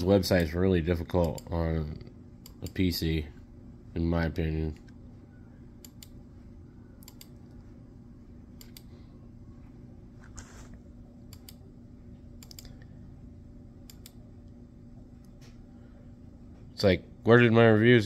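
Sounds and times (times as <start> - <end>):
low steady hum: 0.0 - 18.0
computer mouse clicking: 1.2 - 1.5, 5.8 - 6.2, 7.0 - 7.6, 8.6 - 8.9, 11.3 - 11.6, 12.4 - 12.9, 13.8 - 14.6.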